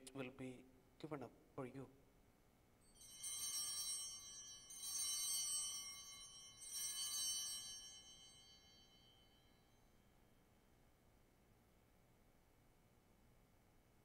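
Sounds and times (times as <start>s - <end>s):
small bells ringing: 2.8s - 10.2s.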